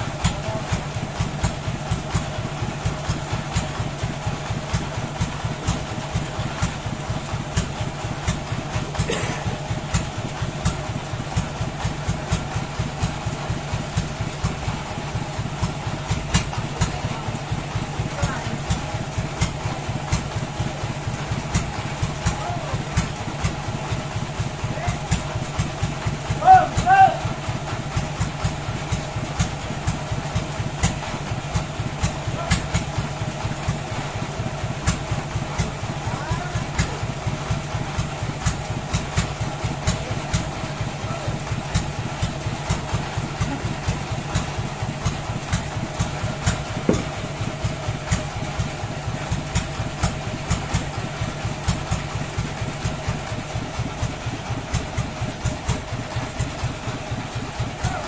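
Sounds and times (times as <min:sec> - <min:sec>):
engine running steadily: 0:00.0 - 0:58.0.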